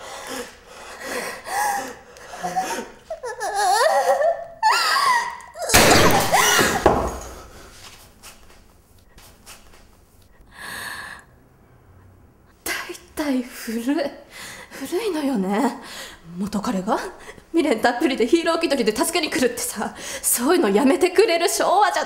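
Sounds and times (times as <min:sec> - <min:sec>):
crying or laughter: 0:01.5 - 0:06.9.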